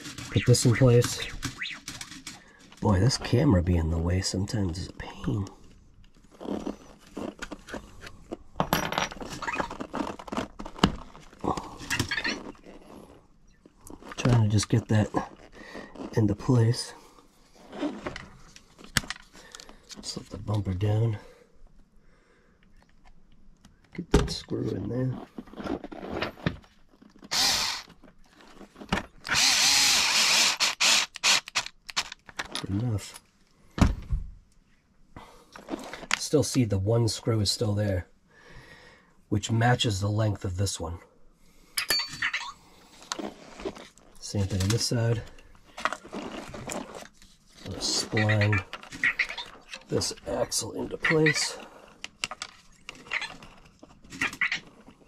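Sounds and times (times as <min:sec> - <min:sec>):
small parts and tools clinking: 0:08.3 - 0:10.4, 0:41.8 - 0:42.5
electric screwdriver driving screw: 0:27.3 - 0:27.9, 0:29.3 - 0:32.2.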